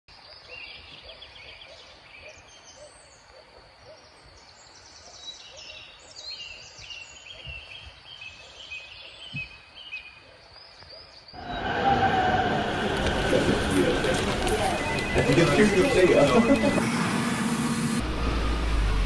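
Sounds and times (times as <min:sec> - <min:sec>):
birds chirping and calling: 0:00.3 - 0:11.6
loud rushing noise: 0:11.4 - 0:19.0.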